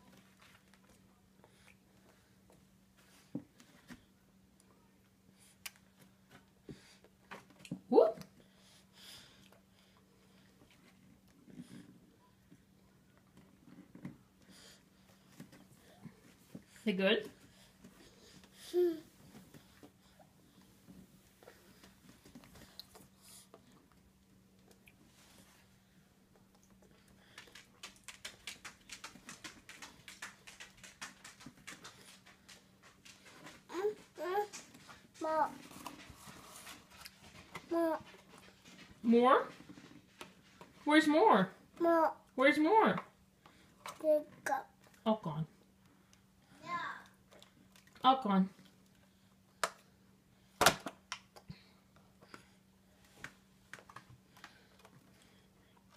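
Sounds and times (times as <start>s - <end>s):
toddler chewing with smacking clicks: 0.1s - 2.6s, 21.4s - 25.4s, 26.3s - 38.9s, 47.0s - 48.0s.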